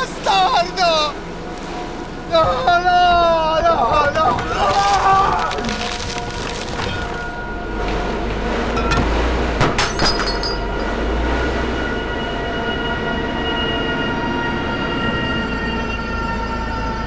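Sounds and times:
low mechanical rumble: 0.8 - 12.7
glass breaking and metal crumpling: 4.4 - 7.3.

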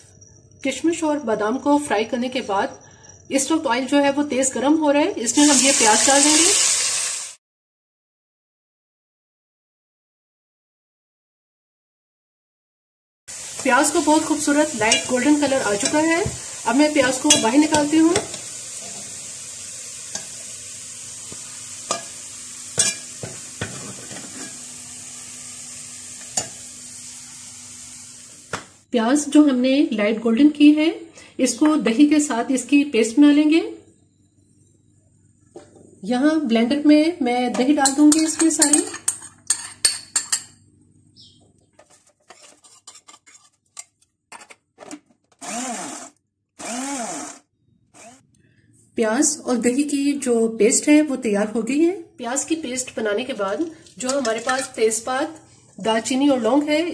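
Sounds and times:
hot oil sizzling: 5.2 - 7.4, 13.3 - 28.8, 52.4 - 55.4
metal spoon clinking on pot: 14.9 - 16.1, 17.0 - 19.0, 21.9 - 22.2, 22.8 - 24.6, 37.8 - 40.5
spoon scraping plastic jar: 41.8 - 44.6
blender motor whirring: 45.4 - 47.4, 48.0 - 48.2.

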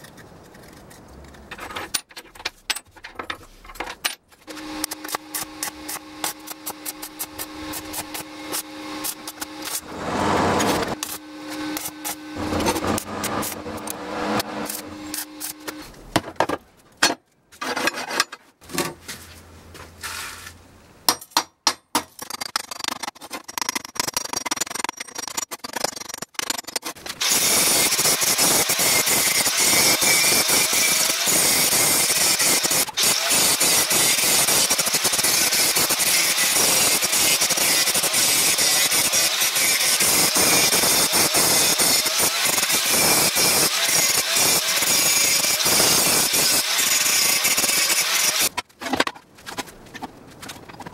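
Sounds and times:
angle grinder grinding steel: 4.5 - 15.9, 27.1 - 48.6
stick welding crackling: 4.5 - 16.0, 26.9 - 48.6.

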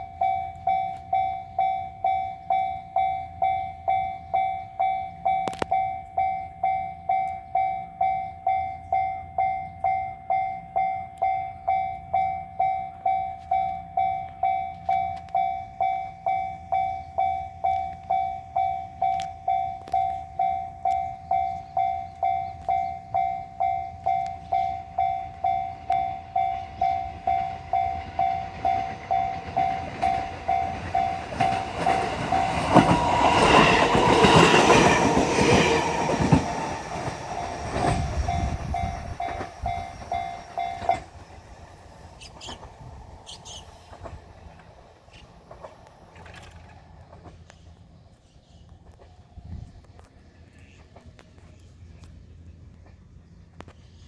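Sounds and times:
level crossing warning bell: 0.0 - 42.6
electric train passing: 0.0 - 53.7
train wheels clattering: 12.2 - 41.4.

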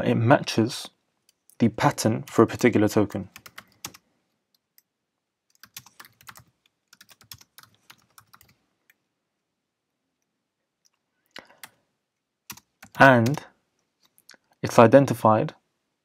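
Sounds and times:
computer keyboard typing: 2.2 - 4.0, 5.5 - 9.0, 12.5 - 13.4.

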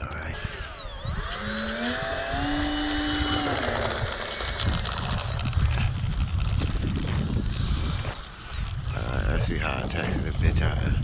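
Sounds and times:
electric fan whine: 0.0 - 11.0.

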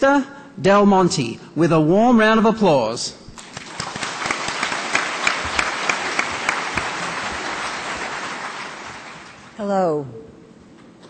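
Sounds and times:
large audience applauding: 3.4 - 9.6.

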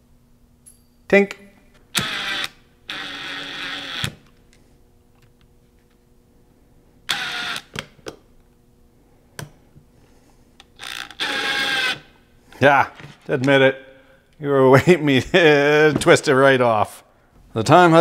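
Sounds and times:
cordless screwdriver whirring: 2.0 - 4.3, 7.1 - 7.8, 10.7 - 12.1.

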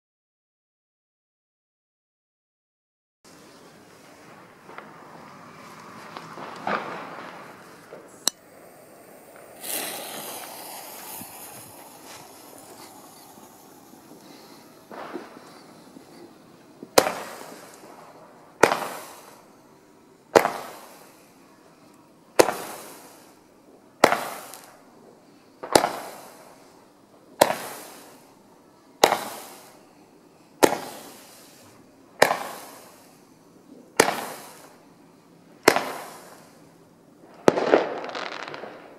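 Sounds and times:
firework comet hissing: 3.3 - 28.4, 29.0 - 38.9
firework comet bangs: 4.1 - 19.6, 20.2 - 21.4, 22.4 - 23.4, 24.0 - 24.9, 25.6 - 28.3, 29.0 - 29.9, 30.6 - 34.8, 35.6 - 38.9.

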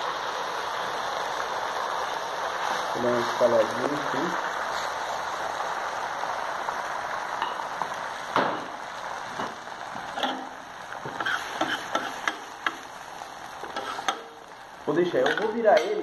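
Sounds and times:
egg sizzling on griddle: 0.0 - 16.0
spatula scraping metal plate: 13.6 - 14.2.

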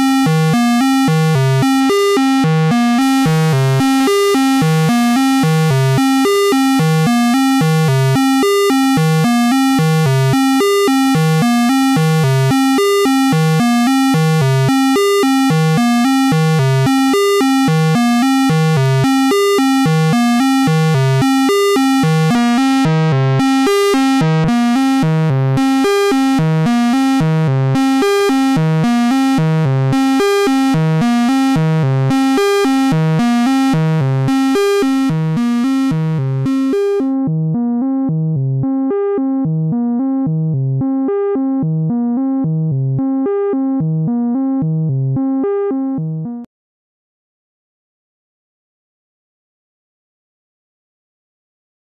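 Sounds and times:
distorted synthesizer sequence: 0.0 - 27.3, 28.2 - 37.2.

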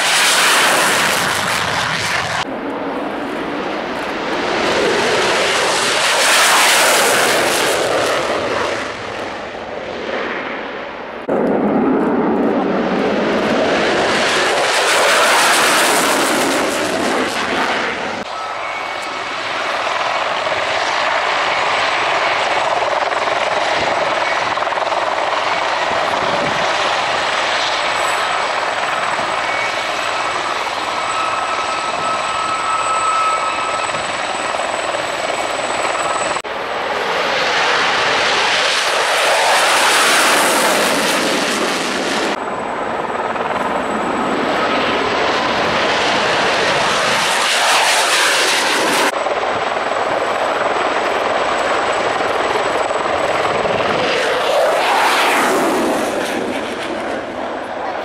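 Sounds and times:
fighter jet flying past: 0.0 - 22.6, 25.4 - 58.0
helicopter turbine whine: 0.0 - 58.0.

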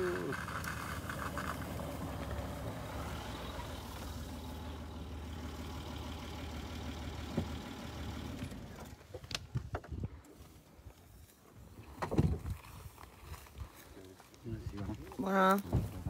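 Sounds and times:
car engine running: 0.0 - 9.1.

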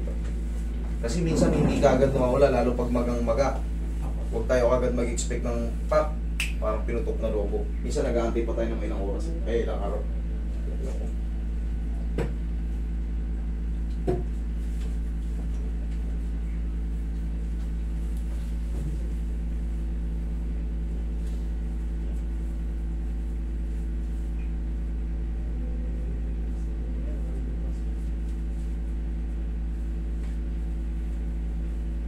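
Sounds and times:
air conditioner humming: 0.0 - 32.0.

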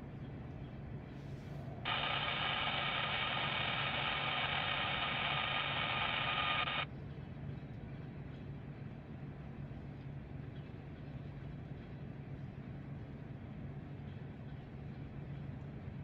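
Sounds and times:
radio static hiss: 1.8 - 6.9.

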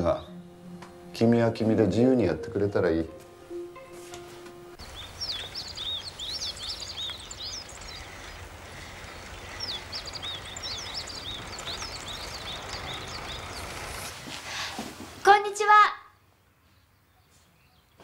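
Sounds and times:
low outdoor rumble: 4.8 - 14.1
small birds chirping: 4.8 - 14.2, 16.4 - 18.0.

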